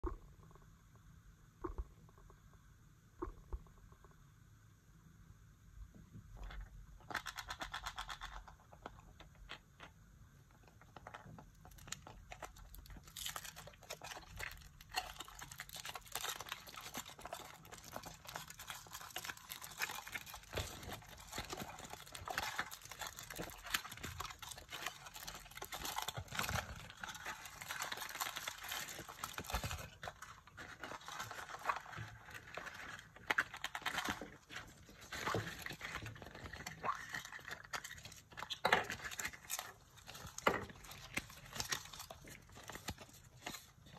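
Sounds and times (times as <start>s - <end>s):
foil wrappers crinkling and tearing: 11.6s - 43.9s.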